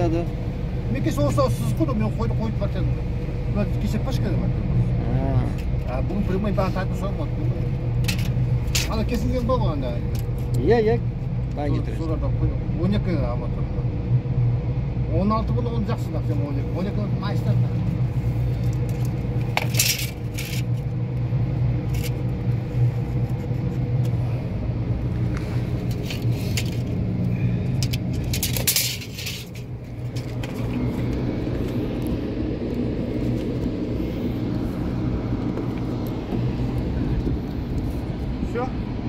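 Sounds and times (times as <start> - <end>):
engine humming: 0.0 - 39.0
rattling scrapes: 18.8 - 20.8, 25.5 - 27.0, 27.8 - 30.8.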